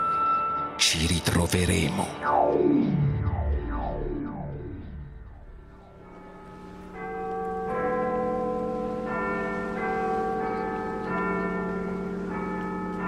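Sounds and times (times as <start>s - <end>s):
church bells ringing: 5.4s - 13.0s.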